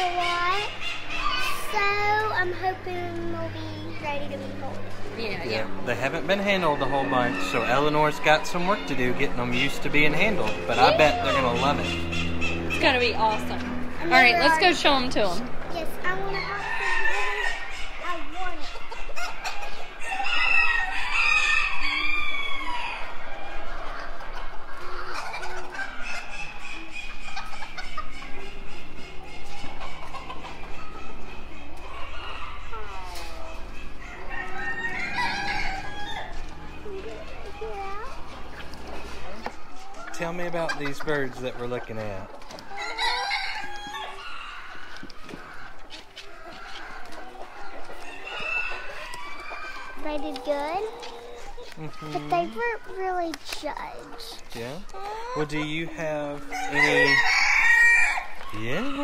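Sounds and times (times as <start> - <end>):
chicken clucking: 4.4 - 59.0
rooster crowing: 6.6 - 7.8, 20.0 - 23.6, 34.0 - 36.4, 42.7 - 45.1, 56.5 - 59.0.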